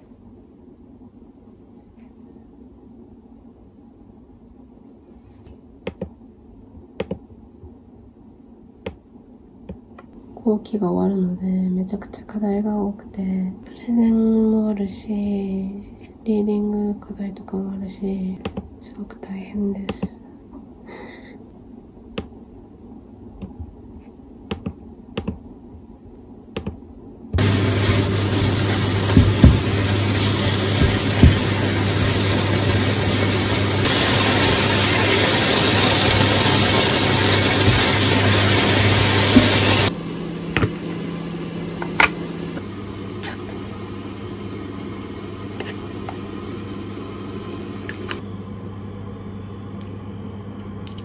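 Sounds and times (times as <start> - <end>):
low room hum: 0.0 - 51.0
laptop keyboard keystrokes: 7.0 - 7.2, 24.5 - 25.4, 26.6 - 26.8.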